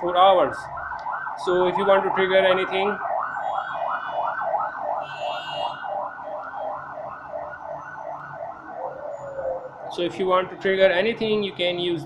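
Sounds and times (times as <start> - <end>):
electronic siren yelping: 2.0 - 10.0.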